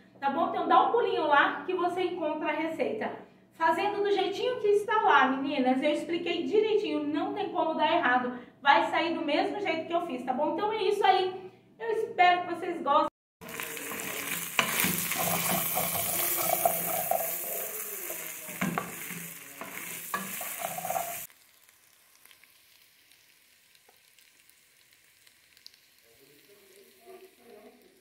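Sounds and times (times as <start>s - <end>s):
wooden spoon stirring: 13.4s - 21.3s
food sizzling in a pot: 13.4s - 28.0s.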